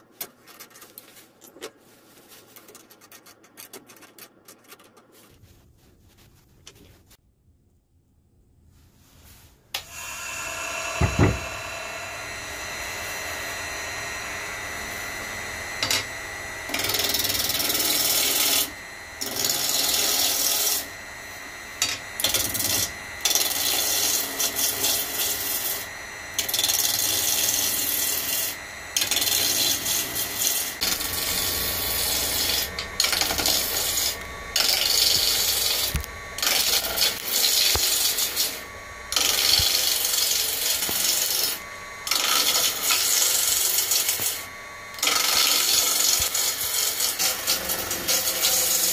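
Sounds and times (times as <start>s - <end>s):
wood lathe whining: 9.7s - 48.9s
gouge cutting spinning wood: 9.8s - 48.9s
knock: 11.0s - 11.5s.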